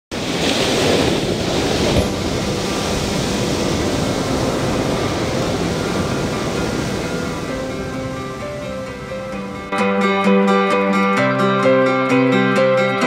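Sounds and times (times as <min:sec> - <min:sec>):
surf breaking on beach: 0:00.1 - 0:09.8.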